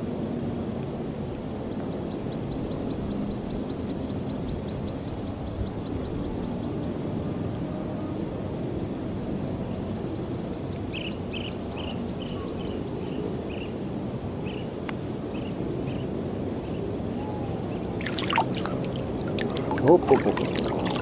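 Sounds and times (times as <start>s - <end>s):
sharp clicks or splashes: 18.0s - 21.0s.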